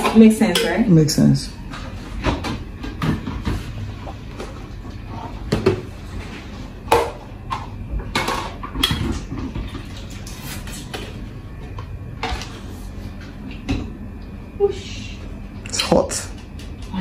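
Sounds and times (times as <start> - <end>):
plastic bowls clattering in sink: 5.4 - 11.2.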